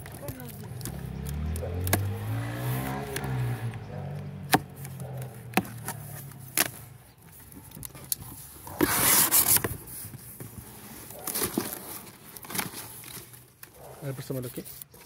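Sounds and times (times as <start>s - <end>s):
vehicle engine running: 0.0s - 8.5s.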